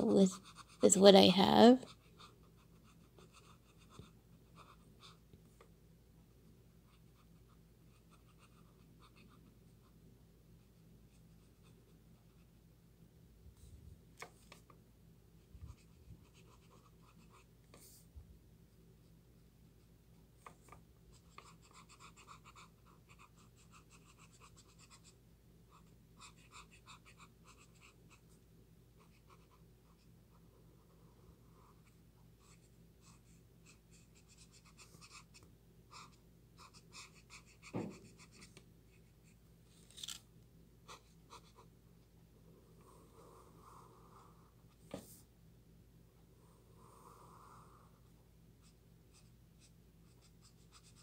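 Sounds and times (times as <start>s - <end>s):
marker scratching on paper: 0.0s - 5.2s, 6.9s - 10.0s, 15.6s - 18.0s, 20.4s - 25.1s, 25.7s - 28.2s, 29.0s - 30.1s, 31.5s - 39.4s, 40.9s - 41.7s, 48.6s - 51.0s
faint steady hum: 0.0s - 51.0s.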